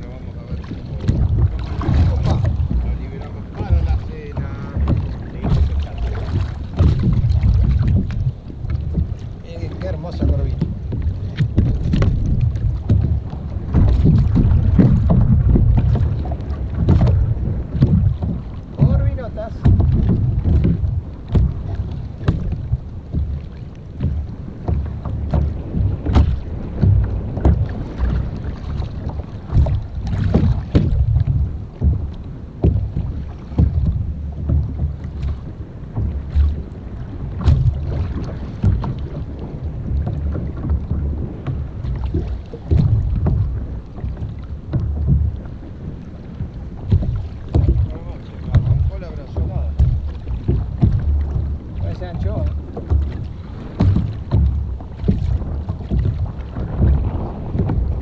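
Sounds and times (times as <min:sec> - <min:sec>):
water slapping against kayak hull: 0:00.0 - 0:58.0
wind buffeting microphone: 0:00.0 - 0:58.0.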